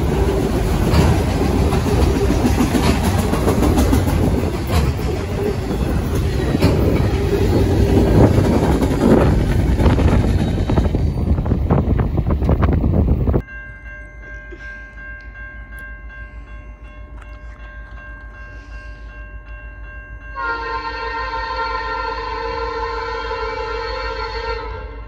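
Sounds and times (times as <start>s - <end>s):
wind noise on microphone: 0.8s - 13.4s
locomotive air horn: 20.4s - 25.0s.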